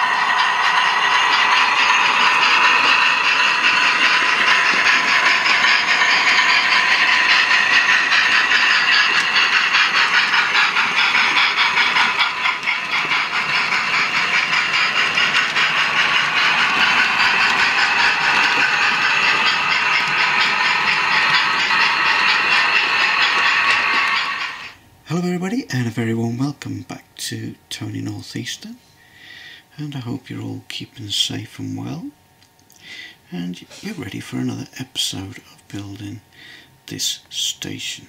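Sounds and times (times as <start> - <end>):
model train wheels rattling on track: 0.0 - 24.8.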